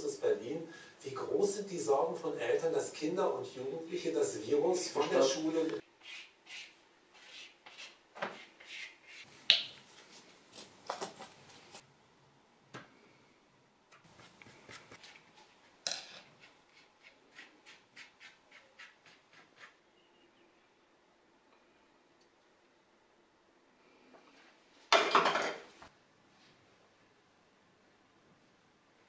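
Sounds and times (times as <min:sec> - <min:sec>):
paintbrush dabbing strokes: 0:13.9 - 0:19.8.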